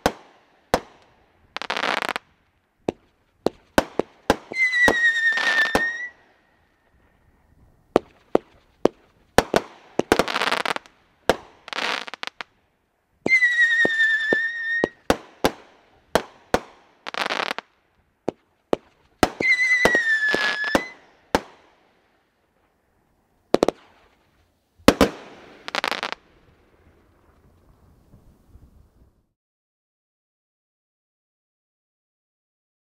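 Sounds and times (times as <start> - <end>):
crackling firework stars: 0.0 - 29.3
firework bangs: 2.9 - 6.3, 7.9 - 12.5, 18.3 - 21.8, 24.8 - 28.3
whistling firework shots: 2.9 - 12.4, 13.2 - 17.7, 18.3 - 21.8, 23.6 - 26.2
faint firework pops: 7.9 - 12.5.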